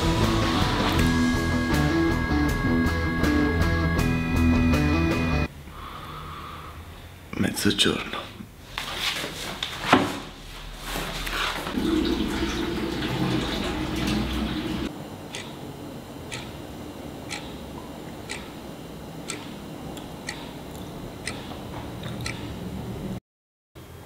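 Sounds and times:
clock ticking: 0:15.3 - 0:15.5, 0:16.3 - 0:16.6, 0:17.3 - 0:17.6, 0:18.2 - 0:18.6, 0:19.2 - 0:22.5.

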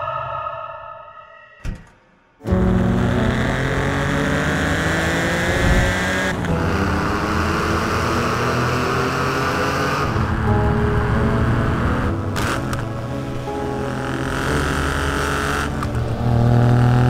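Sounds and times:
sports car engine accelerating: 0:02.5 - 0:17.0.

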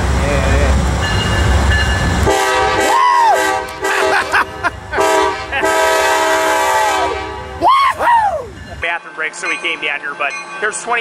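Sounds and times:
train air horn blasts: 0:02.2 - 0:04.2, 0:05.0 - 0:07.6.

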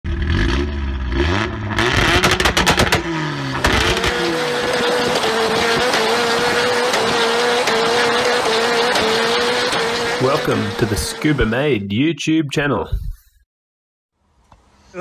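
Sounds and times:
car engine revving: 0:00.1 - 0:11.8
sharp cracks: 0:01.9 - 0:10.2.

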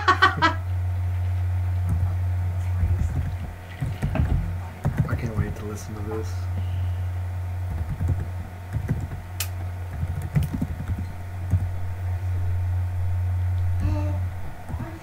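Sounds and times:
steady low hum: 0:00.0 - 0:15.0
computer keyboard typing: 0:03.0 - 0:05.4, 0:07.7 - 0:09.2, 0:09.9 - 0:11.6.

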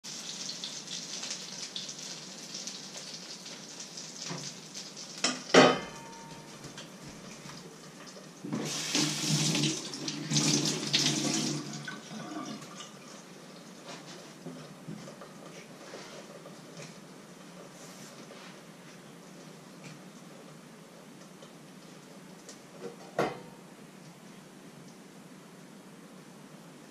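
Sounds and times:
batter sizzling in pan: 0:00.0 - 0:11.5
metal cookware clank: 0:05.2 - 0:06.5.

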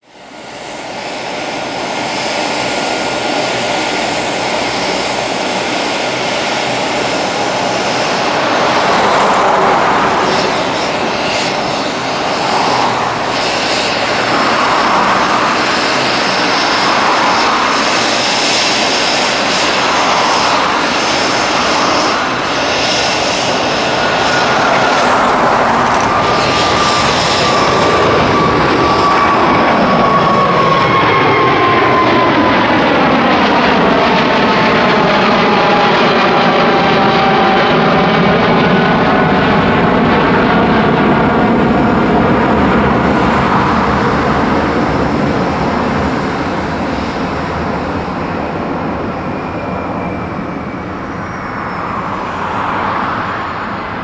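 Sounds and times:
jet engine roar at takeoff: 0:00.0 - 0:54.0.

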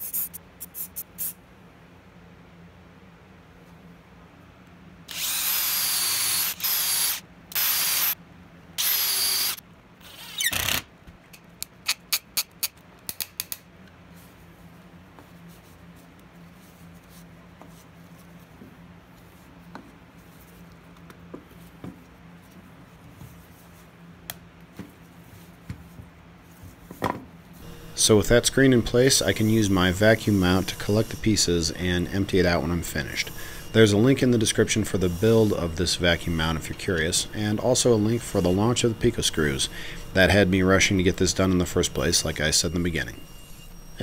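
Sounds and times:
cordless drill boring into plywood: 0:05.1 - 0:08.2, 0:08.8 - 0:10.8.

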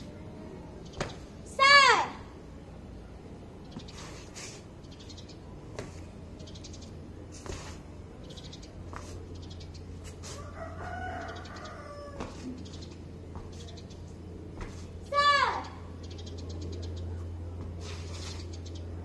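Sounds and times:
steady low hum: 0:00.0 - 0:19.0
rooster crowing: 0:10.3 - 0:12.5.

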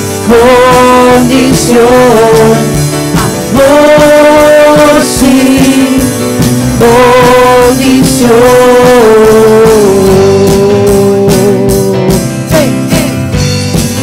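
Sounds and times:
keyboard and band playing: 0:00.0 - 0:14.0
woman singing with vibrato: 0:00.2 - 0:06.1, 0:06.8 - 0:11.8.

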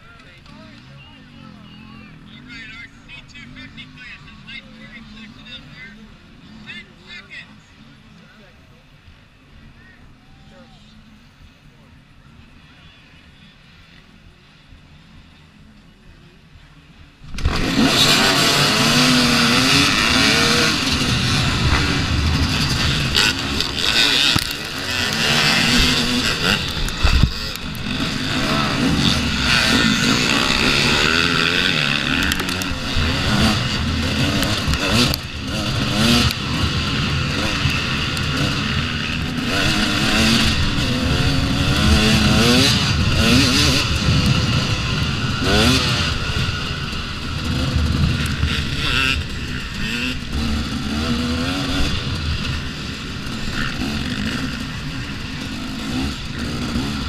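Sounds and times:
dirt bike engine revving: 0:17.2 - 0:57.0.

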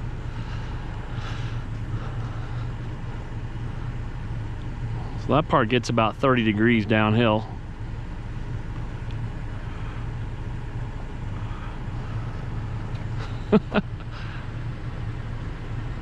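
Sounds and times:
truck engine low hum: 0:00.0 - 0:16.0.

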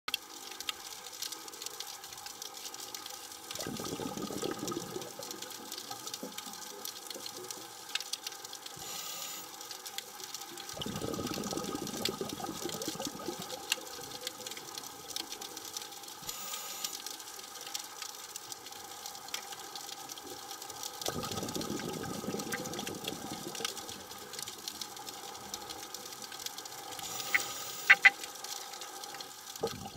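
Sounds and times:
underwater exhaled bubbles: 0:03.5 - 0:07.6, 0:10.6 - 0:14.8, 0:20.1 - 0:28.4, 0:29.5 - 0:29.9
sharp clicks: 0:27.1 - 0:28.3.

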